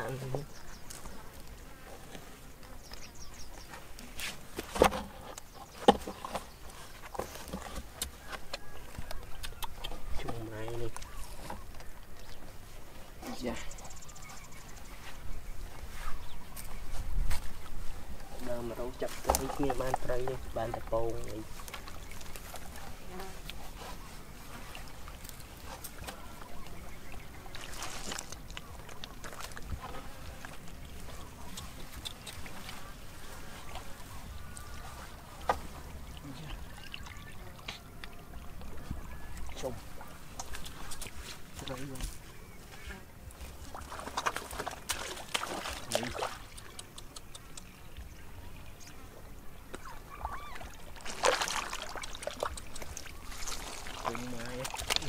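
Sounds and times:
muddy water splashing and trickling: 0.0s - 42.5s, 43.2s - 55.0s
wet mud squelching: 18.4s - 42.2s, 43.3s - 47.8s, 49.7s - 55.0s
sharp clicks: 46.5s - 47.8s.

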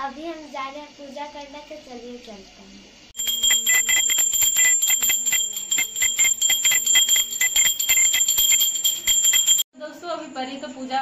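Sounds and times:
hand bell rung fast: 3.2s - 9.7s.

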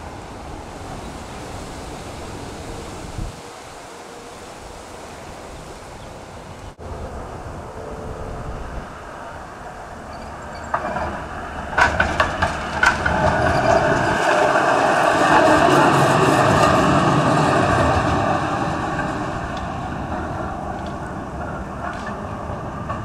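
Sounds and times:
electric tram passing: 0.0s - 23.0s
wheels clacking over rail joints: 8.6s - 23.0s.

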